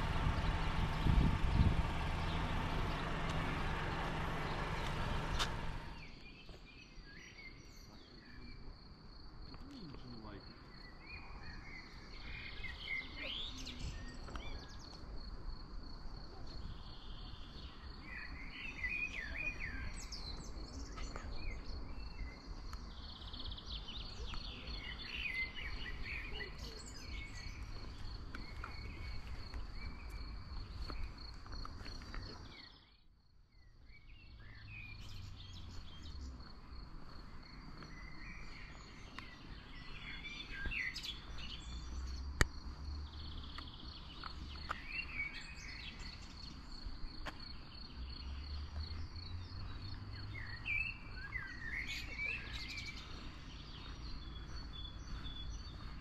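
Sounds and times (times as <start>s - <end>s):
low rumble: 0.0s - 6.1s
songbirds chirping and singing: 0.0s - 56.0s.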